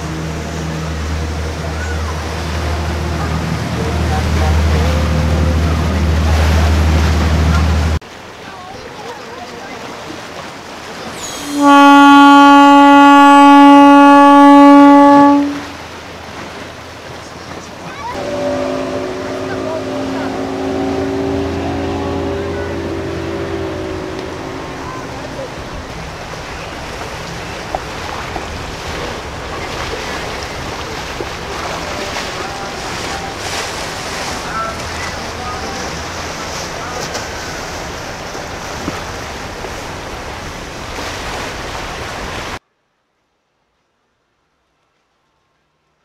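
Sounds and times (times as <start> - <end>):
boat horn blast: 0.0 - 8.0, 11.1 - 16.6, 18.1 - 39.9
wake water washing: 0.0 - 42.6.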